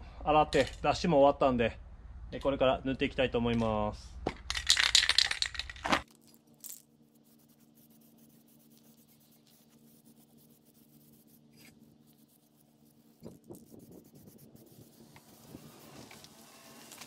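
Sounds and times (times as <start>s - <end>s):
spray can ball rattling: 4.4s - 6.8s
spray paint hissing: 7.2s - 17.0s.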